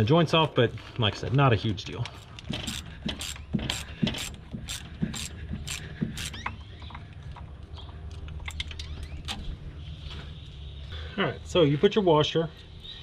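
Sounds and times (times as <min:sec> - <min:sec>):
socket ratchet clicking: 0:02.6 - 0:06.6.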